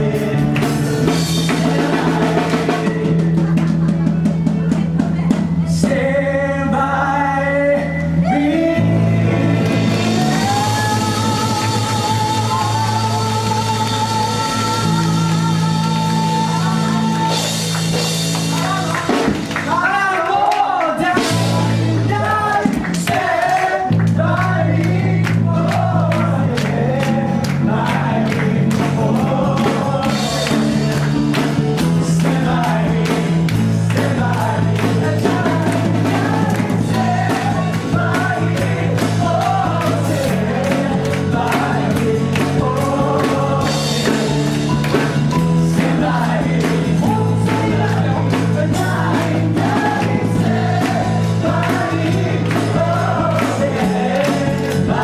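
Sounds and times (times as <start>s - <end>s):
low bass notes: 0.0s - 20.4s, 21.0s - 55.0s
acoustic guitar: 0.0s - 55.0s
person singing into a microphone: 0.0s - 55.0s
steady beat: 21.0s - 55.0s.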